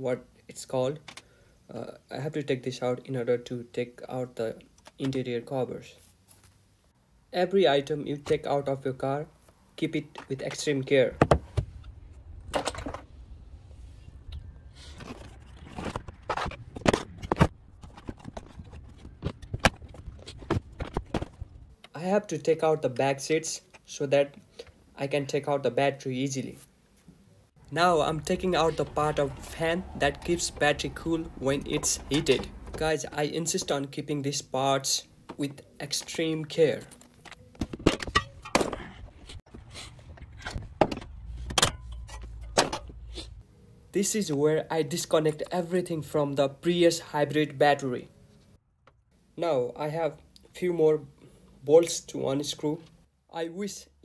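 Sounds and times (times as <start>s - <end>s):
low steady rumble: 11.4s - 21.8s.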